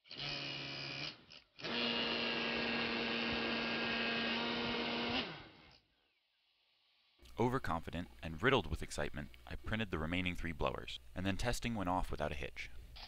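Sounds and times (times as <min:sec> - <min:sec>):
blower fan humming: 0:01.7 - 0:05.5.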